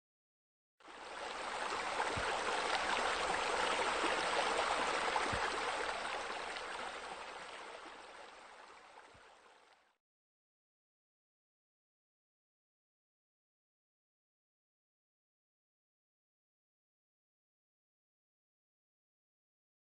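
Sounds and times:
flowing splashing water: 0:00.9 - 0:09.8.

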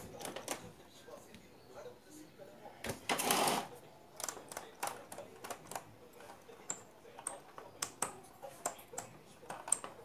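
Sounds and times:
small clicks and taps: 0:04.2 - 0:10.0.

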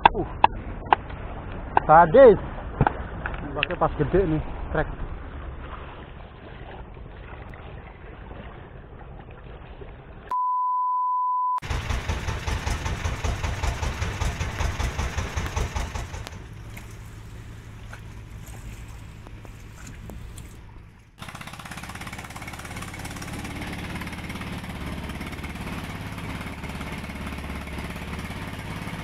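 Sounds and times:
steady beep tone: 0:10.3 - 0:11.6
low background rumble: 0:11.6 - 0:21.3
boat engine pulsing: 0:11.6 - 0:29.0.

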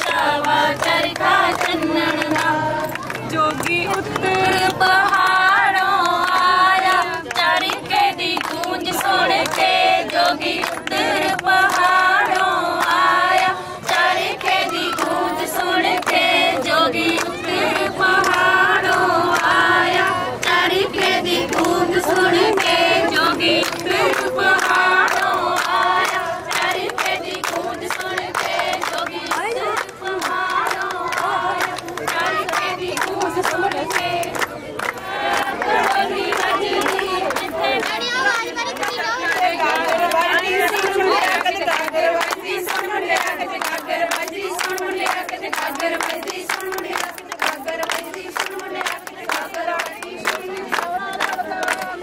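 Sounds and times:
women singing in unison: 0:00.0 - 0:52.0.

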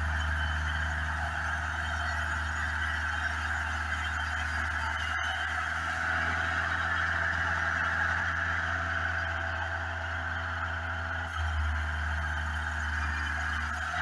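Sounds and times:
band saw cutting log: 0:11.3 - 0:14.0.

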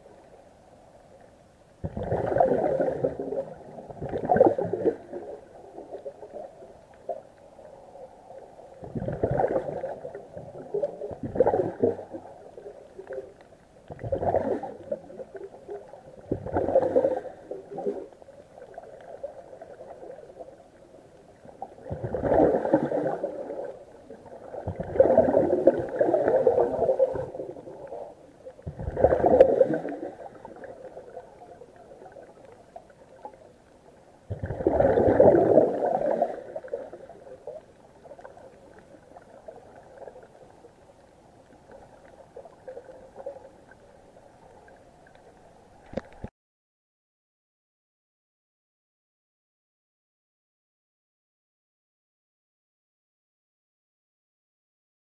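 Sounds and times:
exhaled breath bubbling underwater: 0:01.8 - 0:05.4, 0:08.8 - 0:12.3, 0:13.9 - 0:15.2, 0:21.8 - 0:23.7, 0:24.4 - 0:31.1, 0:34.3 - 0:37.1.

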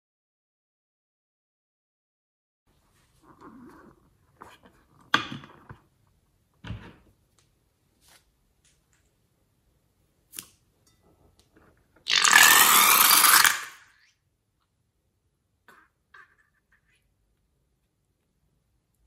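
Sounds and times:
slime hissing spray: 0:12.1 - 0:13.8.

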